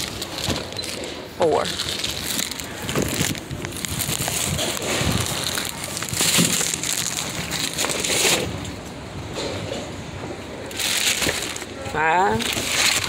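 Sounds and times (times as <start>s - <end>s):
plastic packages crinkling: 0.0s - 8.7s, 10.7s - 13.0s.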